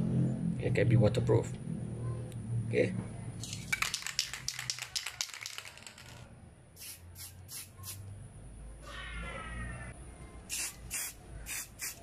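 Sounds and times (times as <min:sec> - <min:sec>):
spray can hissing: 0:06.8 - 0:08.0, 0:10.5 - 0:12.0.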